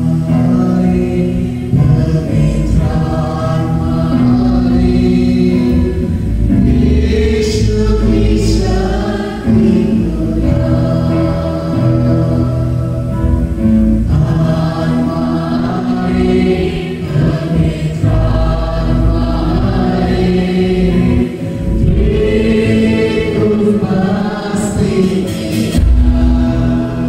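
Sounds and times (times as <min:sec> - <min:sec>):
man singing into microphone: 0:00.0 - 0:06.0, 0:22.4 - 0:27.0
bass guitar: 0:00.0 - 0:27.0
drum kit: 0:21.0 - 0:27.0.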